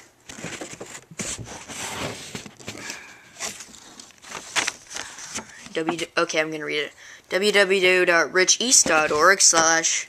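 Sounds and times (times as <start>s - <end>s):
rustling and scraping: 0.2s - 6.1s.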